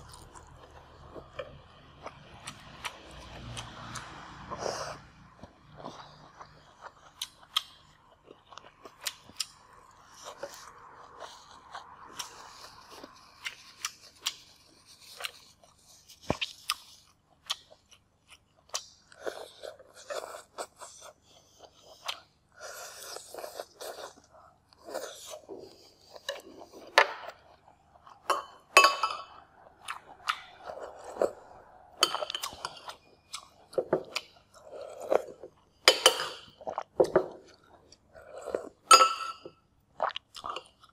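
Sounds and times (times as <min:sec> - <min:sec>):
chewing crispy noodles: 0:00.0 - 0:28.3.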